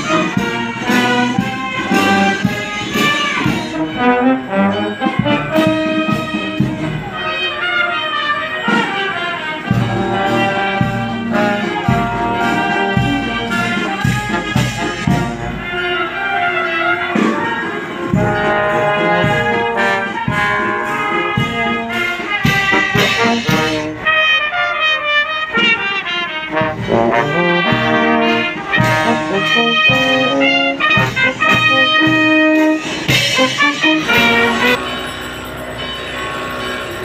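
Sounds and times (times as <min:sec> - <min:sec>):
steady drum beat: 0:00.0 - 0:07.2, 0:09.6 - 0:16.0, 0:18.0 - 0:24.1, 0:25.5 - 0:35.6
brass band playing horns: 0:00.0 - 0:37.0.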